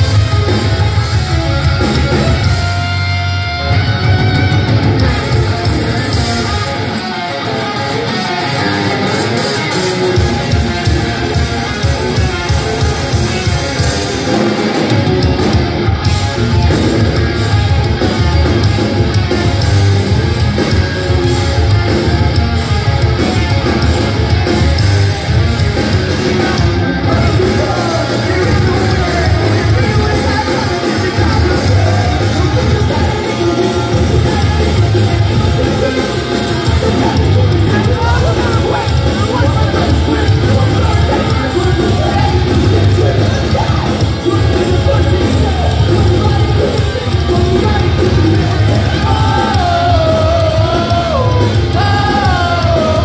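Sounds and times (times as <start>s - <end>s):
bass: 0.0s - 53.0s
distorted guitars: 0.0s - 53.0s
drums: 0.0s - 53.0s
sung and yelled vocals: 25.2s - 53.0s.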